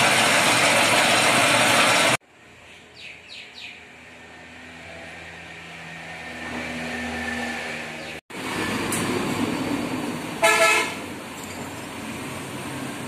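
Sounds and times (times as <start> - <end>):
vehicle engine hum: 0.0 - 13.0
bird chirps: 2.6 - 3.8.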